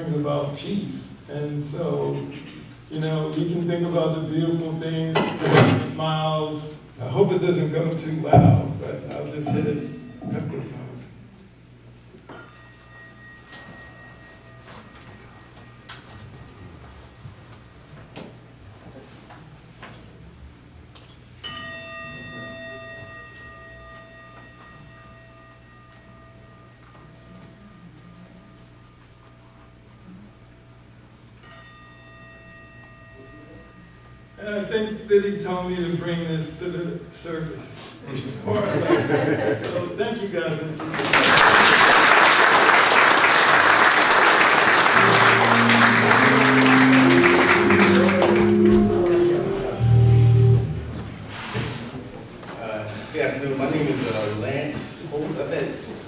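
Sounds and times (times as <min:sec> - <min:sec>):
singing bowl ringing: 0:09.6 - 0:11.4, 0:12.2 - 0:17.9, 0:21.4 - 0:30.3, 0:31.3 - 0:34.4, 0:44.6 - 0:50.8
congregation applauding: 0:40.8 - 0:50.4
instrumental music with bass line: 0:45.0 - 0:51.2.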